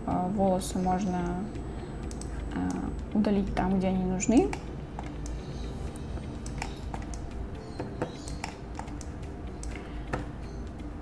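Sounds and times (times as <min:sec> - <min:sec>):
low steady hum: 0:00.0 - 0:11.0
computer mouse clicks: 0:02.0 - 0:02.8, 0:06.4 - 0:07.3, 0:08.0 - 0:10.3.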